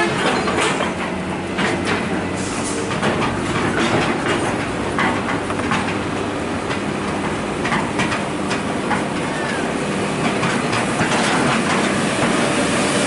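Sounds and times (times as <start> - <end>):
metallic clanks and knocks: 0.0 - 9.3
heavy diesel machinery running: 0.0 - 13.0.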